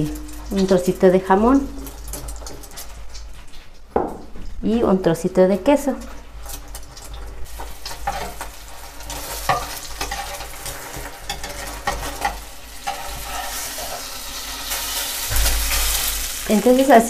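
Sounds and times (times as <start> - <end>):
omelette sizzling in oil: 0.0 - 17.0
metal spatula scraping a pot: 6.0 - 16.3.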